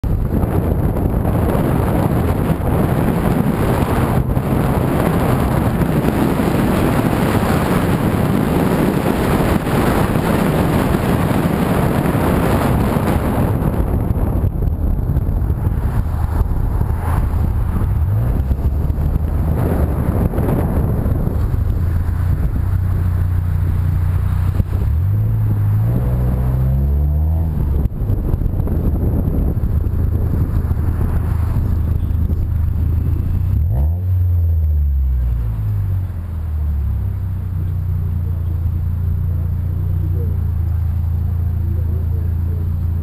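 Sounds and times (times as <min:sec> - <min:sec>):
car engine and tyres rumbling: 0:00.0 - 0:43.0
wind rushing over microphone: 0:00.0 - 0:43.0.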